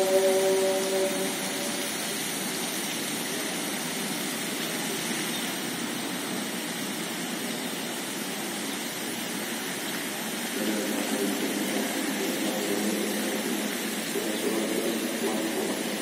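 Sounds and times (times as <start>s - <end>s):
sung call to prayer: 0.0s - 1.9s
rushing city noise: 0.0s - 16.0s.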